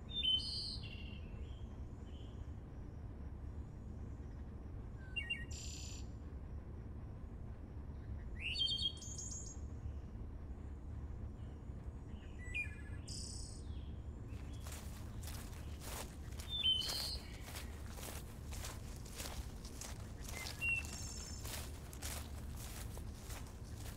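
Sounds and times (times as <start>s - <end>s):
low outdoor rumble: 0.0s - 23.9s
songbirds chirping: 11.3s - 23.9s
footsteps rustling through plants: 14.3s - 23.9s.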